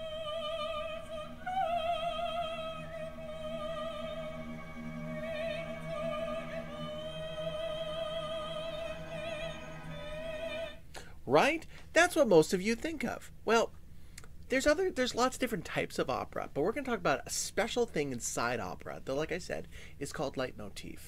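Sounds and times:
operatic soprano singing: 0.0 - 10.9
quiet low accompaniment: 0.0 - 21.0.

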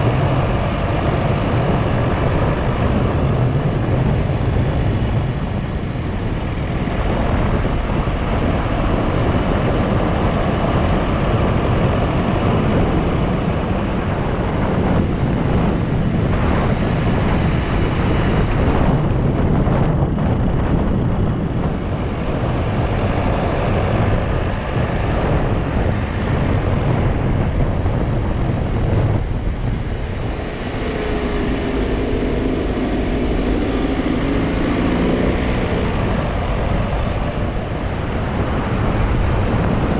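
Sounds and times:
car interior road noise: 0.0 - 39.9
steady pitched hum: 27.4 - 39.9.

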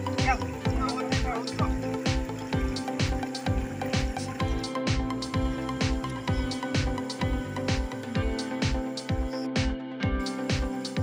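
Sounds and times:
steady drum beat: 0.0 - 11.0.

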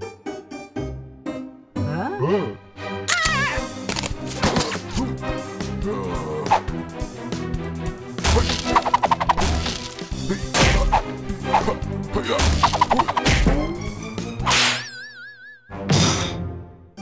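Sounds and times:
background music: 0.0 - 17.0
cartoon rapid whacks: 8.2 - 9.8, 12.4 - 13.6.

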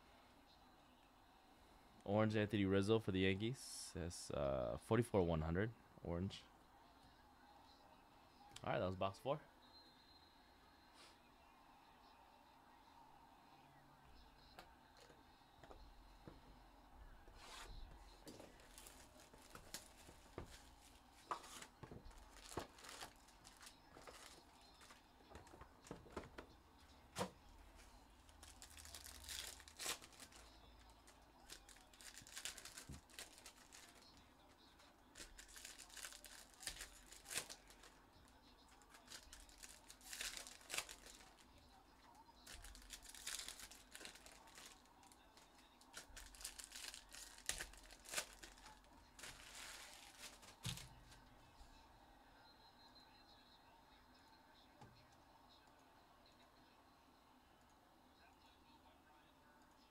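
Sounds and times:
foil wrappers crinkling and tearing: 18.2 - 26.4, 28.2 - 34.2, 35.1 - 38.0, 38.7 - 41.5, 42.4 - 51.1.

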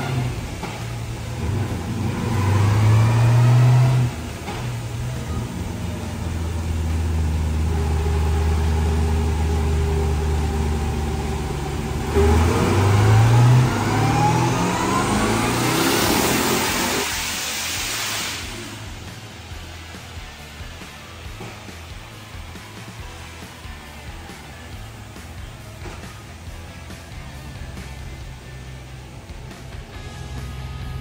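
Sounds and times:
engine revving under full throttle: 0.0 - 31.0
turbo whine: 0.0 - 31.0
loud rush of air: 13.0 - 20.3.

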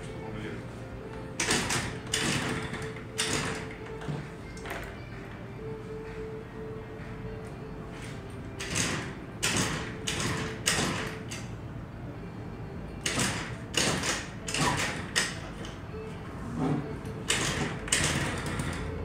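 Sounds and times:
scooter engine kick-started: 1.4 - 5.0, 8.6 - 11.4, 13.0 - 15.8, 16.8 - 19.0.

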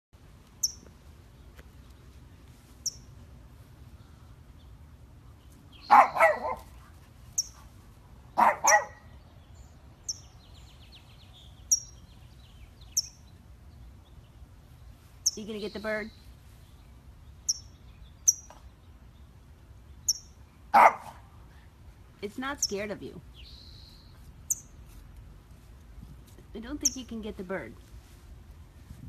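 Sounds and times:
bird chirping: 0.6 - 0.9, 2.8 - 3.1, 7.3 - 7.6, 8.4 - 20.9, 22.5 - 24.9, 26.8 - 27.4
small dog barking: 5.9 - 6.8, 8.4 - 9.1, 20.7 - 21.2.

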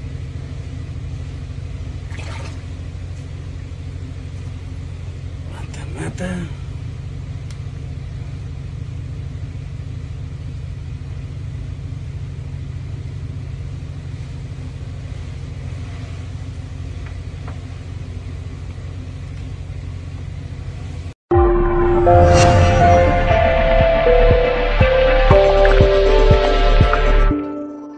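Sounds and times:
low rumble: 21.3 - 27.3
loud outro music: 21.3 - 27.9.

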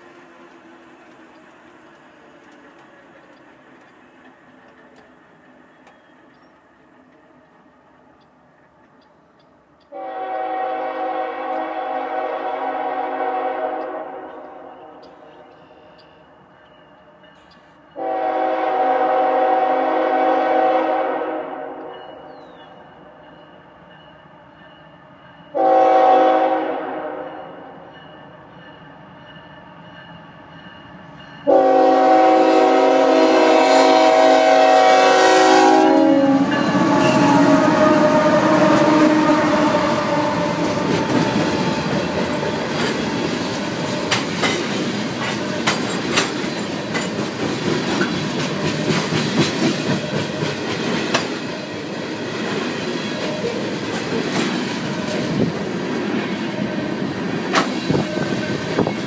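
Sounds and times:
wheels clicking over rail joints: 0.0 - 10.0, 40.0 - 56.4
diesel locomotives rumbling: 0.0 - 59.0
train horn blast: 9.9 - 16.0, 17.9 - 22.4, 25.5 - 28.0, 31.4 - 42.8.

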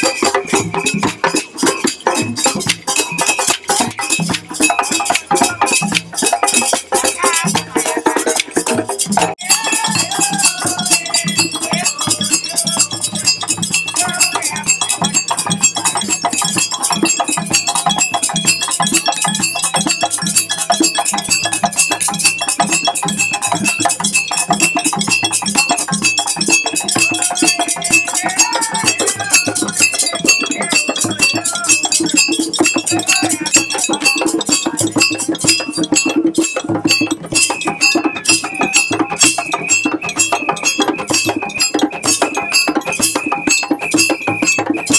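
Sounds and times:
high ringing metallic tone: 0.0 - 8.2, 9.0 - 44.9
hand drums playing fast: 0.0 - 44.9.

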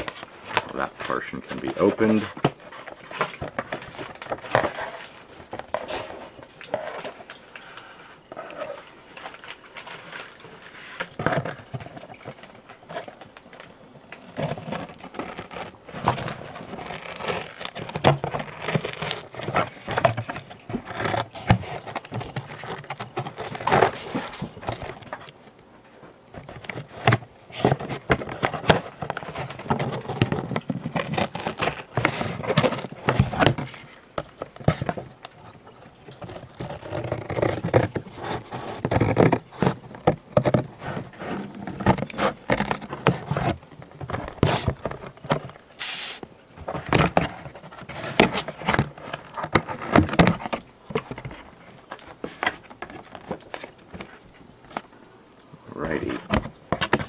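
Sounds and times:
cardboard box being handled: 14.1 - 25.3, 26.4 - 54.9.

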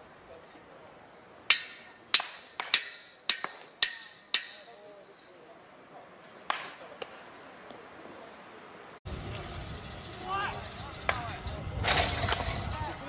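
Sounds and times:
baseball bats cracking balls: 1.5 - 4.9, 6.2 - 7.9, 11.0 - 12.7.

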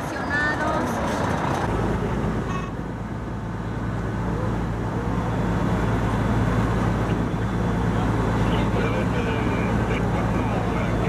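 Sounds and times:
engine idling: 1.2 - 11.0.

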